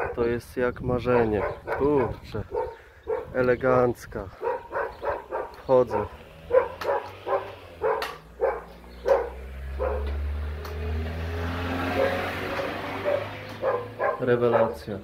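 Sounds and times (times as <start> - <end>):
dog barking: 0.0 - 0.3, 1.1 - 3.4, 4.4 - 10.2, 11.9 - 15.0
vehicle passing with low rumble: 4.4 - 15.0.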